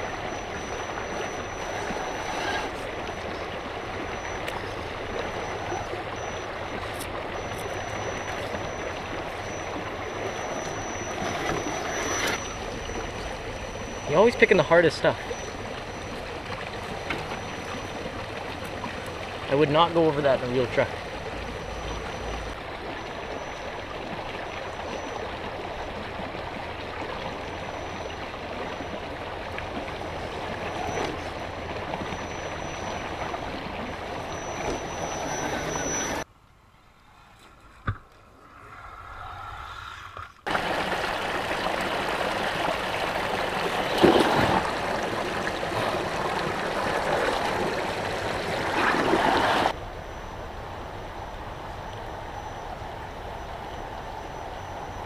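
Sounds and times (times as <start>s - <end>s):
river rushing over stones: 40.5s - 49.8s.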